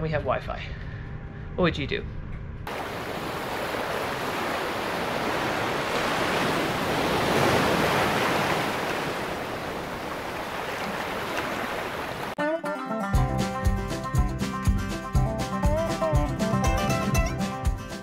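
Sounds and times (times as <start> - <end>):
wind: 0.0 - 12.4
waves: 2.7 - 12.4.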